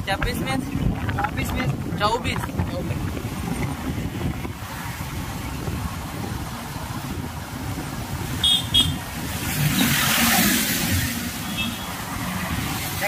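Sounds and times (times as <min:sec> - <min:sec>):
vehicle rumbling on road: 0:00.0 - 0:13.0
high-pitched horn beeps: 0:08.4 - 0:09.0, 0:11.4 - 0:11.9.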